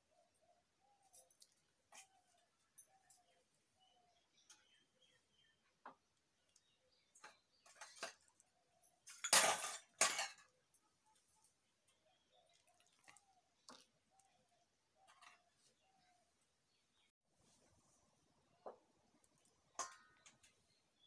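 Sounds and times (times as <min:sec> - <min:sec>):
metal vessels clinking: 0:09.0 - 0:10.6, 0:19.7 - 0:20.6.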